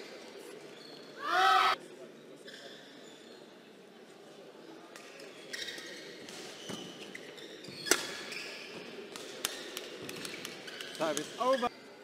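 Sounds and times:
shoe squeaks on court floor: 0:00.7 - 0:01.2, 0:02.4 - 0:03.5, 0:05.1 - 0:11.9.

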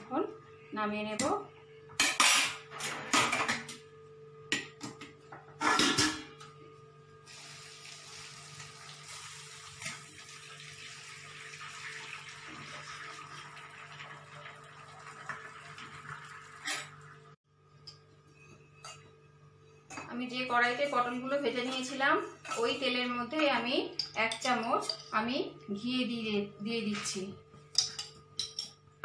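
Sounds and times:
water pouring into strainer: 0:07.3 - 0:16.6.

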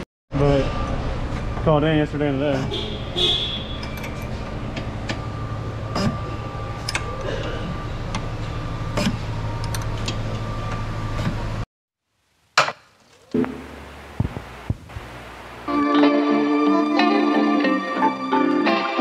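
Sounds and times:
steady hum: 0:13.4 - 0:15.8.

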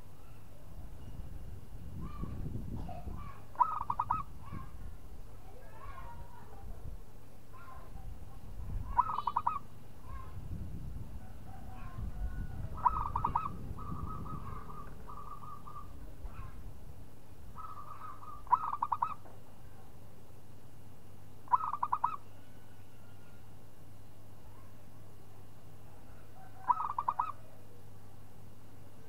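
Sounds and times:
dove cooing: 0:03.6 - 0:04.6, 0:08.9 - 0:09.7, 0:11.2 - 0:16.5, 0:17.6 - 0:19.2, 0:21.5 - 0:22.2, 0:26.4 - 0:27.6.

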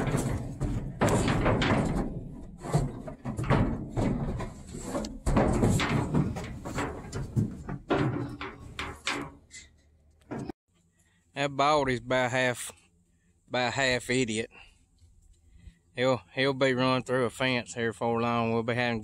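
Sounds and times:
hooves knocking on metal trailer: 0:00.0 - 0:09.5.

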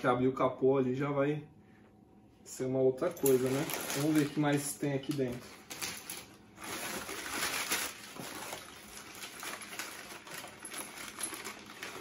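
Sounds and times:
plastic and cardboard crinkling: 0:03.2 - 0:12.0.

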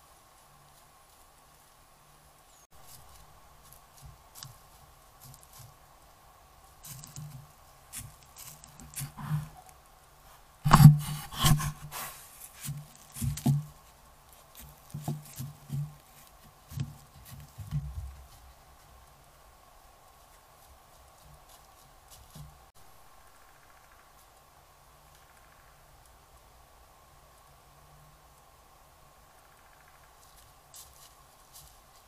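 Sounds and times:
hooves crunching through dry leaves: 0:00.0 - 0:22.8, 0:29.5 - 0:32.0
deer bumping the camera: 0:06.9 - 0:09.7, 0:10.7 - 0:13.8.

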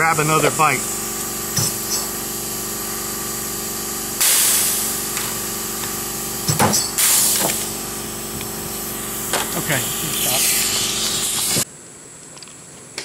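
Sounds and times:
steady hum: 0:00.0 - 0:12.2
rivet gun air hiss: 0:04.2 - 0:05.0, 0:07.0 - 0:07.7, 0:09.0 - 0:11.7.

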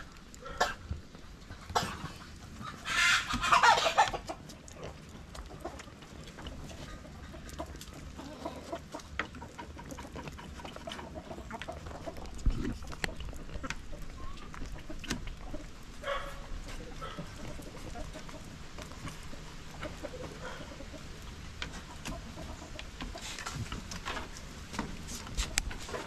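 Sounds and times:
chicken calls: 0:00.0 - 0:24.4
chickens clucking: 0:00.0 - 0:26.0.

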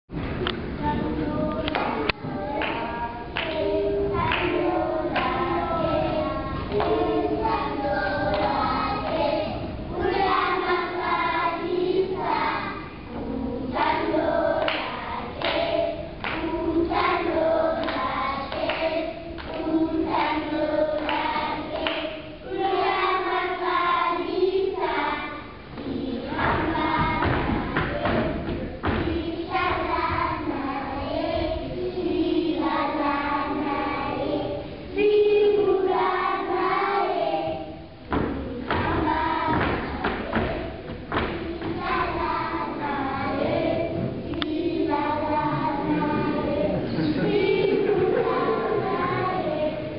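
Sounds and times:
children's choir singing: 0:00.1 - 0:49.9
rhythmic hand claps: 0:01.4 - 0:25.1, 0:25.7 - 0:34.4, 0:35.4 - 0:49.9.

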